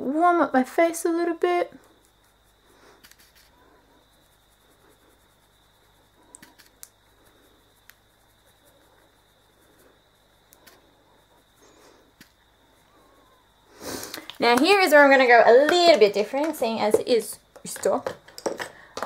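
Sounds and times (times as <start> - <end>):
faint high-pitched whine: 0.0 - 19.0
faint clicks: 6.2 - 10.9, 12.1 - 13.0, 14.1 - 14.7.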